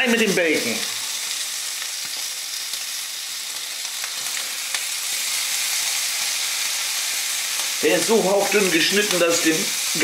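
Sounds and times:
bacon sizzling in a frying pan: 0.0s - 10.0s.

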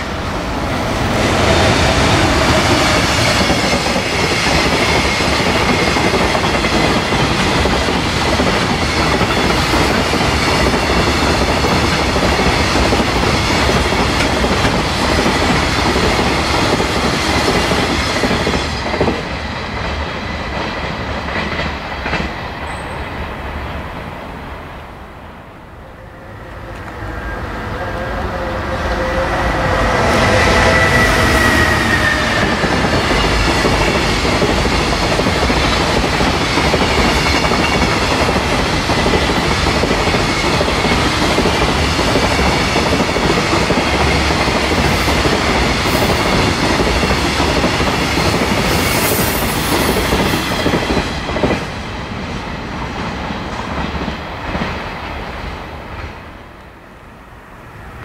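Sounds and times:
electric locomotive whine: 0.0s - 58.0s
train wagons clattering over rails: 31.6s - 51.8s.

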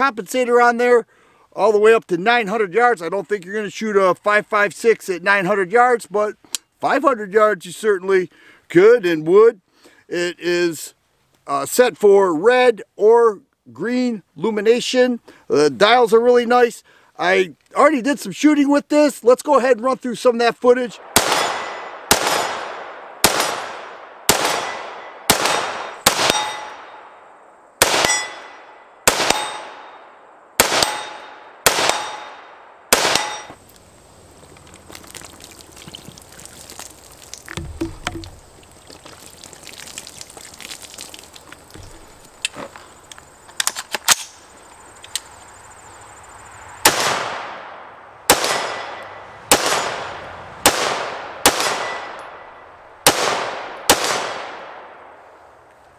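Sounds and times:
rifle single shots with echo: 21.0s - 33.6s, 46.8s - 55.4s.

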